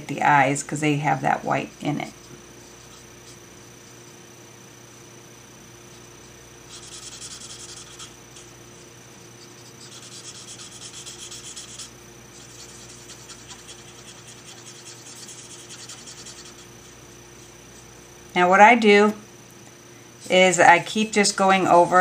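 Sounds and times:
marker nib scratching on cardstock: 1.7s - 4.2s, 5.9s - 8.5s, 9.2s - 17.6s.

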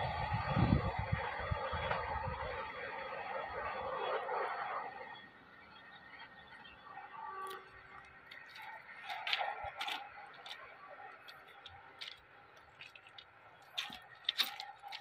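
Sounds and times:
faint outdoor background: 0.0s - 15.0s
footsteps crunching on ballast: 7.5s - 15.0s.

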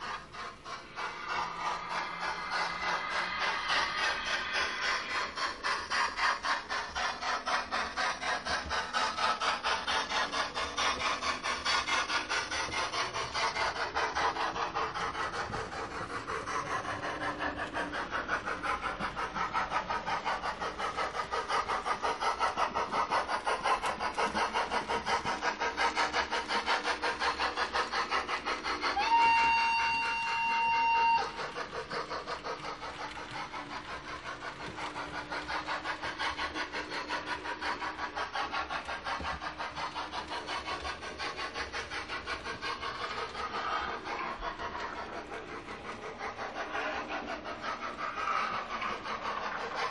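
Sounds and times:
steam locomotive exhaust chuff: 0.0s - 49.9s
steam whistle: 28.9s - 31.5s.

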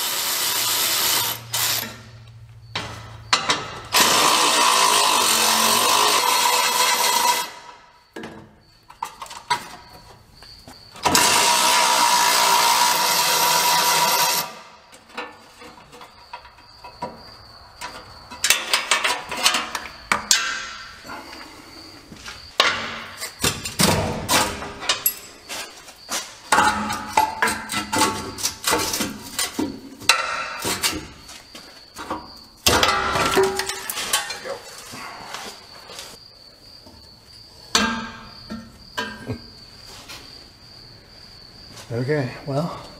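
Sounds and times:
power tool whirring: 0.0s - 2.0s, 3.9s - 7.7s, 11.0s - 14.7s.

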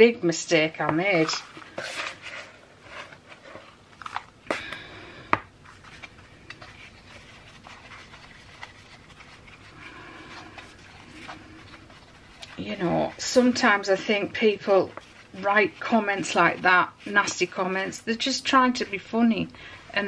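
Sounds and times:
powder crunching and scraping on plastic: 5.7s - 19.1s.

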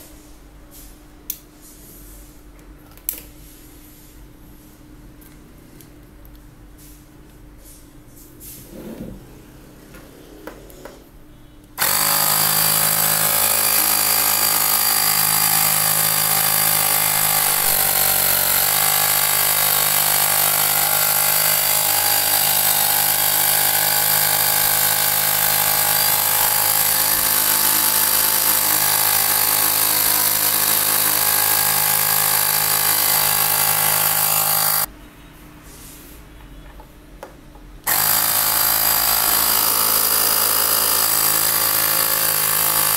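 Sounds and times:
air compressor running: 11.8s - 34.9s, 37.9s - 42.9s.

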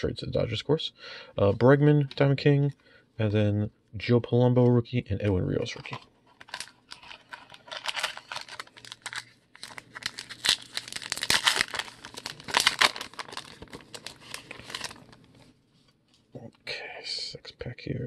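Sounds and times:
foil wrapper crinkling and tearing: 5.8s - 15.5s.

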